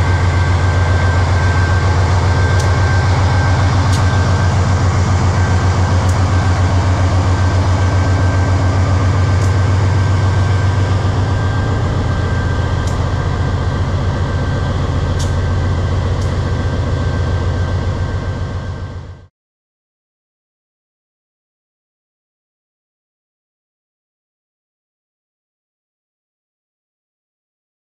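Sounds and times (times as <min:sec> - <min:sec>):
locomotive engine rumbling: 0:00.0 - 0:19.3
steady high whine: 0:00.0 - 0:19.3.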